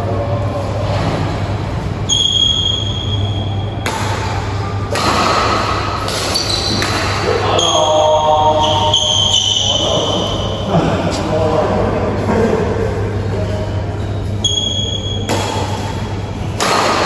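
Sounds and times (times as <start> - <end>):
high steady squeal: 2.0 - 3.8, 6.3 - 10.7, 13.9 - 15.3
racket striking shuttlecock: 3.8 - 7.3, 15.2 - 16.0, 16.6 - 17.0.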